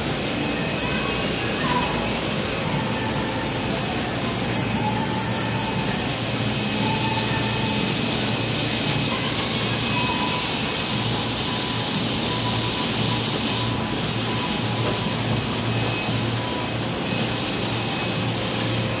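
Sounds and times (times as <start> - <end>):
mechanical running noise: 0.0 - 19.0.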